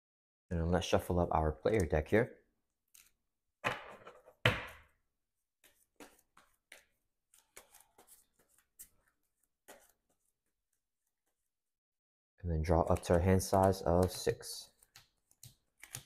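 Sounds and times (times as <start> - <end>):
cards shuffling rustles and clicks: 5.6 - 11.5, 12.7 - 16.0.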